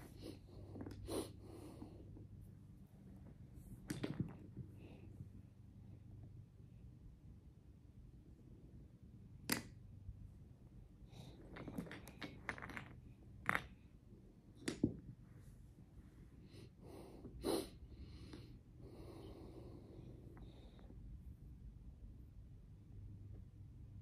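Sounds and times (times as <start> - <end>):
toy blocks clicking together: 9.4 - 9.8.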